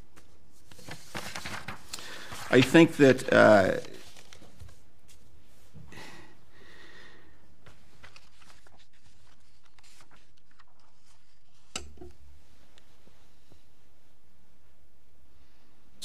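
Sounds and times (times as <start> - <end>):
papers rustling: 0.1 - 5.7, 7.6 - 11.7.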